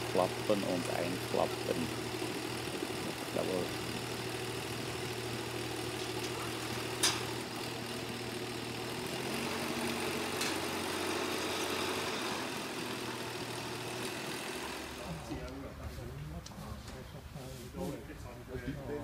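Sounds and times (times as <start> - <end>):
tractor engine idling: 0.0 - 15.6.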